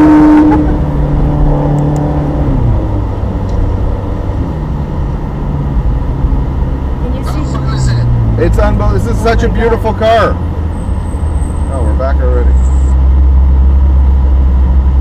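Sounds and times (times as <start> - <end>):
sports car engine revving: 0.0 - 11.7
wind and road noise: 0.0 - 15.0.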